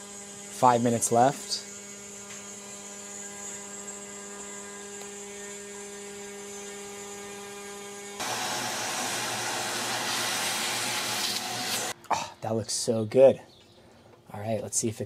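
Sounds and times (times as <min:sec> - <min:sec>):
cnc spindle cutting plywood: 0:00.0 - 0:12.0
vacuum cleaner running: 0:04.8 - 0:12.0.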